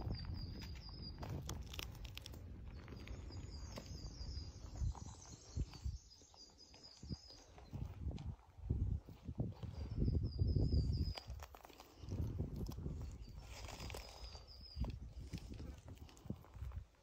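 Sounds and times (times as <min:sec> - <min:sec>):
footsteps crunching through dry leaves: 0:13.3 - 0:14.4.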